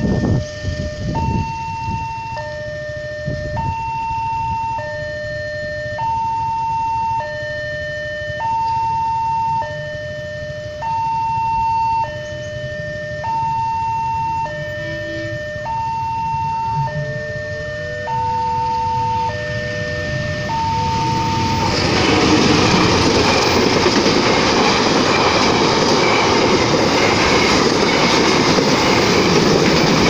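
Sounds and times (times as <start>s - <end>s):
level-crossing alarm two-tone signal: 0.0s - 23.7s, 24.3s - 29.2s
low rumble: 18.4s - 30.0s.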